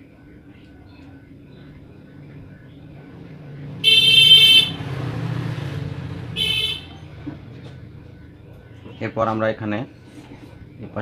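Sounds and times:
vehicle horn honking: 3.8 - 4.9, 6.4 - 7.0.

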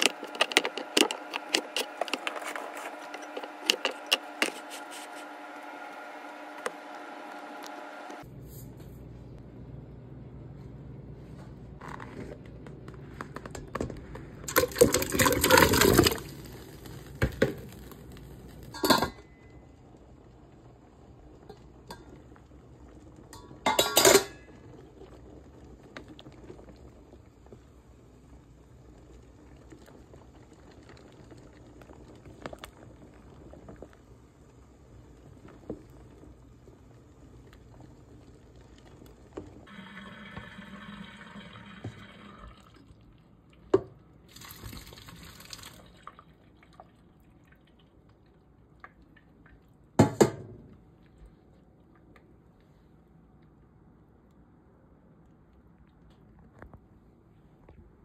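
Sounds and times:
water boiling faintly: 0.0 - 58.0
water running into colander: 14.4 - 17.3, 39.7 - 43.0, 43.8 - 47.0
potatoes splashing into pot: 14.5 - 18.2
metal cookware clattering: 18.8 - 19.4, 23.4 - 24.5.

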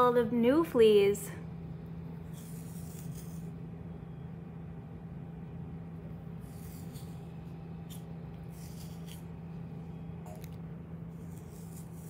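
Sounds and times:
steady low hum: 0.0 - 12.0
brush scratching through dog fur: 2.3 - 3.5, 6.4 - 9.3, 11.1 - 12.0.

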